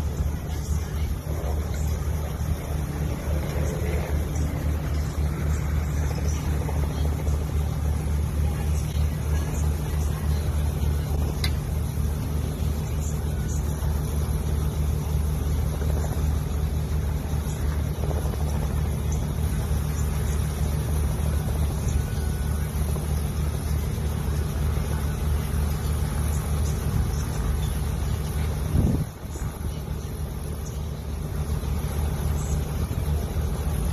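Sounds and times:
helicopter idling: 0.0 - 33.9.

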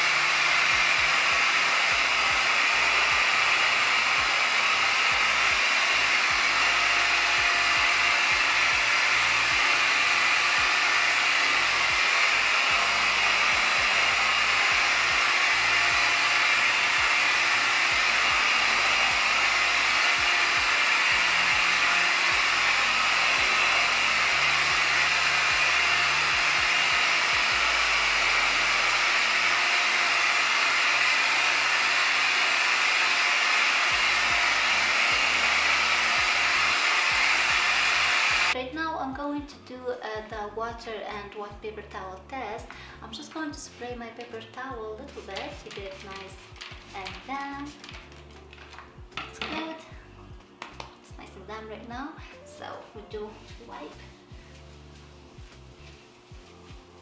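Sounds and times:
floor cleaner running: 0.0 - 38.6.

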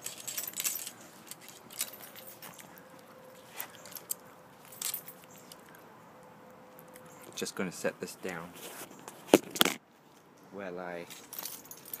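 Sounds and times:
harness buckles jingling: 0.0 - 5.6, 11.1 - 12.0.

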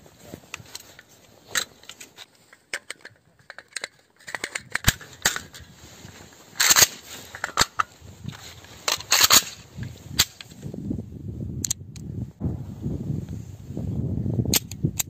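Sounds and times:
rifle magazine metallic clicks: 2.7 - 5.6, 6.6 - 7.9, 8.9 - 9.6, 14.5 - 15.0
low rumbling noise: 12.2 - 14.5.

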